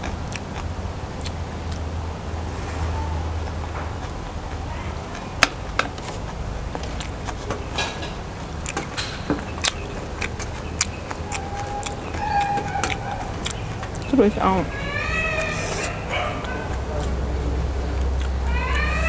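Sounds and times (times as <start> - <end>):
chewing noodles: 0.0 - 19.0
chopstick and mouth clicks: 3.8 - 14.1.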